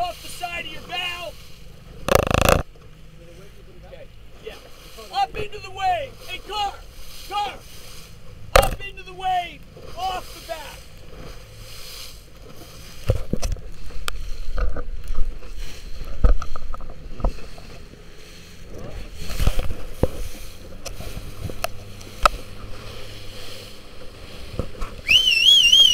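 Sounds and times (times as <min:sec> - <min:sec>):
water splashing against hull: 0:00.0 - 0:25.9
boat hull knocking on waves: 0:02.0 - 0:03.0, 0:04.4 - 0:11.6, 0:12.3 - 0:18.0.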